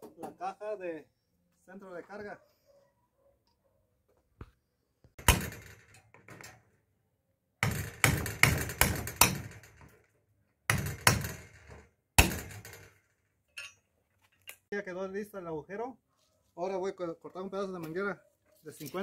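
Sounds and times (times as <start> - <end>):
hammer striking on metal: 7.6 - 9.6.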